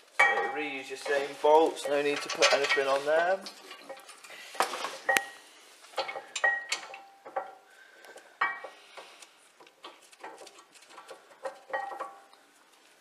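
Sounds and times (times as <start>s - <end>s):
tools clinking on metal: 6.0s - 7.6s.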